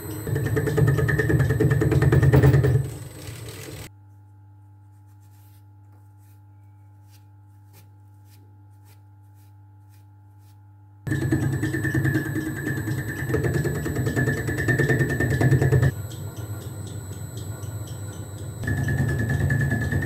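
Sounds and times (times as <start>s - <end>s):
lathe cutter chattering: 11.1s - 20.0s.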